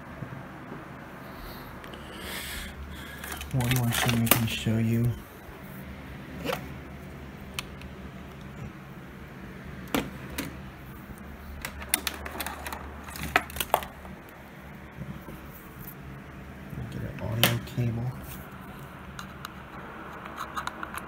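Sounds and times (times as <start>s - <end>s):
low hum: 0.0s - 21.0s
handling clicks and knocks: 3.2s - 4.6s, 11.6s - 14.2s.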